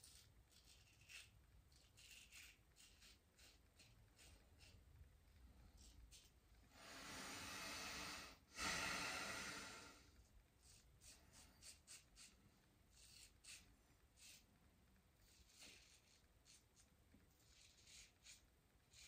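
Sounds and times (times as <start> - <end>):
razor scraping stubble: 0.0 - 4.8
breathing through the nose: 6.7 - 10.0.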